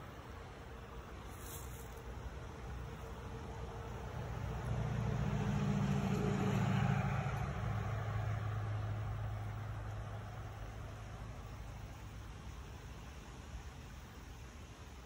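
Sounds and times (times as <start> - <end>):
motor vehicle passing by: 1.2 - 11.8.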